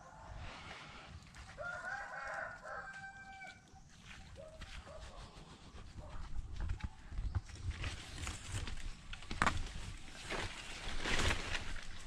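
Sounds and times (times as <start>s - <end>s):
rooster crowing: 1.6s - 3.6s.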